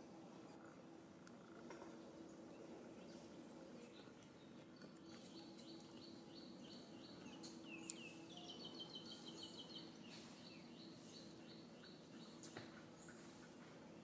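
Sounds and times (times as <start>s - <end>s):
faint bird chirping: 0.4s - 13.7s.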